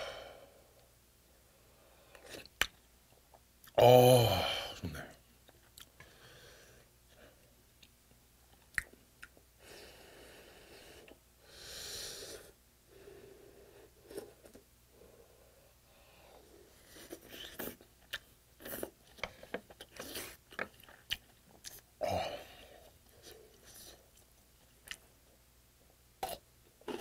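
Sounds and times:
chewing with sharp crunches: 17.0 - 21.9.

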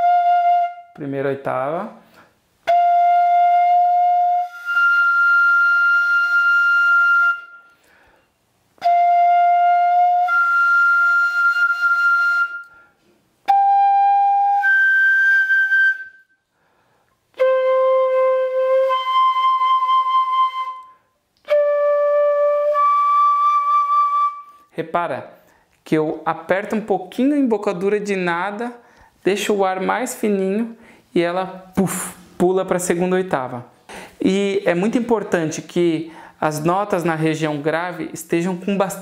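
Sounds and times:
breaths between notes: 7.7 - 8.4, 12.6 - 13.2, 16.4 - 17.2, 25.4 - 25.8, 28.8 - 29.2, 30.8 - 31.1, 33.8 - 34.2, 36.1 - 36.4.

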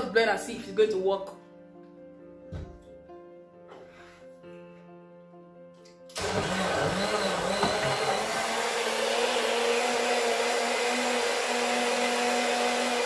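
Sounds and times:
blender motor whirring: 6.1 - 13.0.

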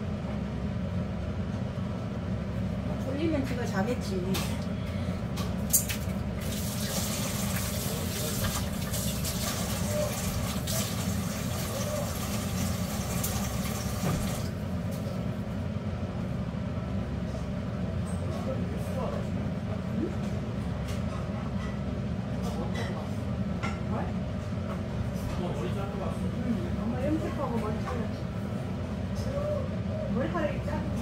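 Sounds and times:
low kitchen hum: 0.0 - 31.0.

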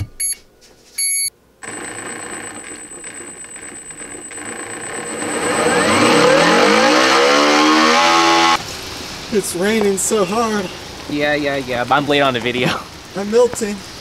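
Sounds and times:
electronic beep: 1.0 - 8.6
electric motor whine: 1.6 - 8.6.

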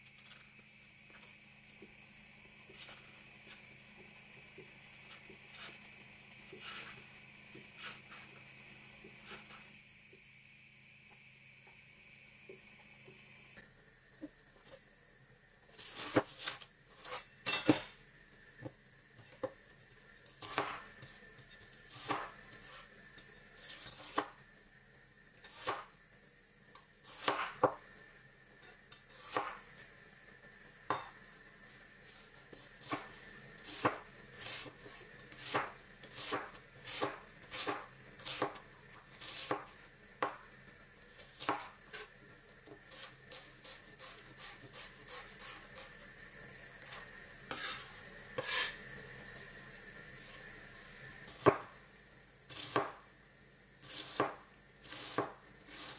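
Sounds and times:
knife chopping on cutting board: 6.5 - 8.3, 20.4 - 21.0, 21.9 - 22.8, 25.5 - 25.9, 27.1 - 27.8, 29.2 - 29.6, 32.5 - 38.6, 39.2 - 40.4, 41.2 - 42.1, 47.5 - 48.8, 51.3 - 51.7, 52.5 - 53.0, 53.8 - 55.9.

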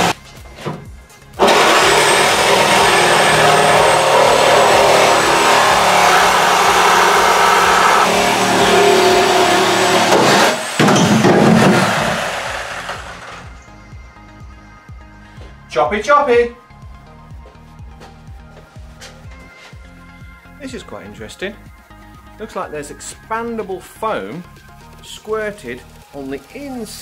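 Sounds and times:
reciprocating saw cutting steel: 1.4 - 13.4.

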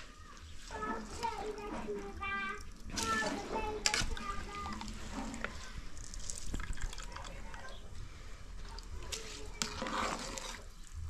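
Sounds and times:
water dripping and splashing: 0.0 - 11.0
metal ladle scooping rice: 8.7 - 11.0.

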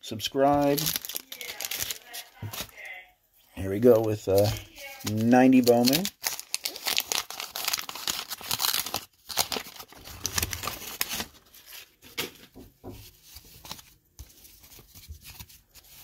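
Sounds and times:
cards rustling: 0.4 - 3.0, 3.6 - 12.4, 13.0 - 16.0
paper wrapper tearing and crinkling: 0.4 - 3.0, 3.8 - 12.1.

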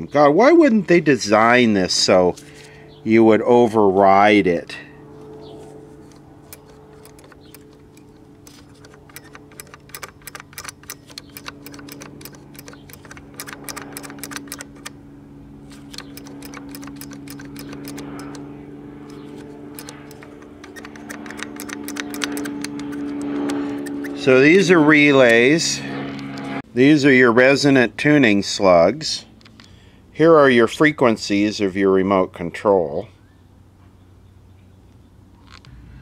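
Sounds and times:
steady hum: 0.0 - 31.2
small mechanical clicks: 6.0 - 15.0, 15.7 - 18.4, 19.1 - 25.4.

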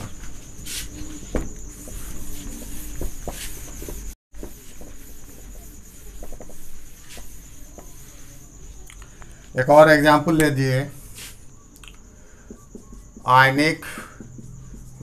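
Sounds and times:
cloth rubbing on whiteboard: 0.3 - 8.8.

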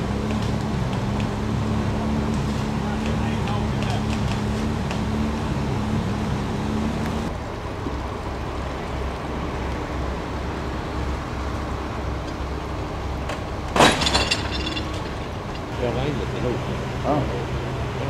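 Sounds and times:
engine running with pulsing rumble: 0.0 - 18.0
hum: 0.0 - 18.0
loud clunk: 13.7 - 15.2.

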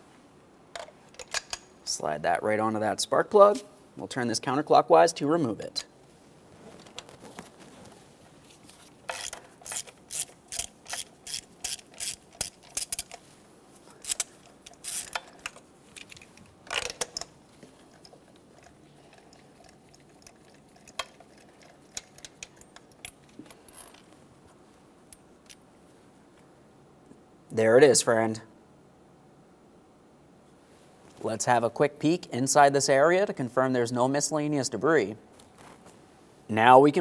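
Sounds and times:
ratchet clicking: 9.1 - 13.2, 14.0 - 15.6.

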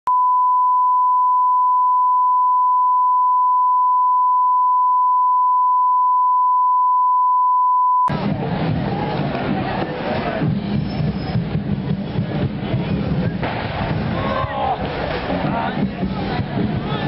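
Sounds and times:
sine-wave test tone: 0.1 - 8.1.

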